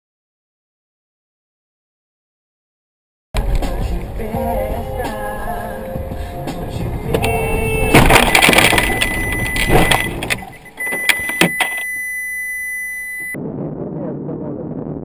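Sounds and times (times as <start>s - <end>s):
high electronic tone: 4.4s - 13.4s
car crash crunching impact: 7.8s - 10.5s
debris clattering: 7.9s - 10.6s.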